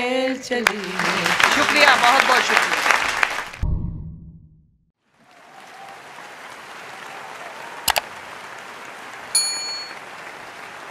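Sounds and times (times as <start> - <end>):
audience applause: 0.6 - 3.6, 5.1 - 10.9
bell ding: 9.4 - 10.0.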